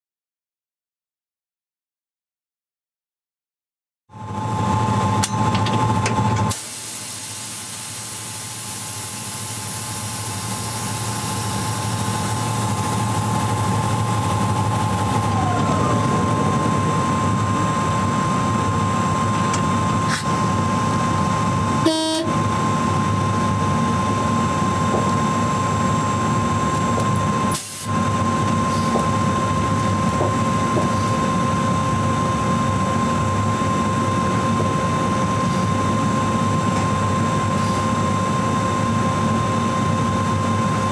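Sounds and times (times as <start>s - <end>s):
locomotive hum and rumble: 4.1s - 40.9s
high whine: 8.2s - 40.9s
whine falling in pitch: 10.4s - 37.2s.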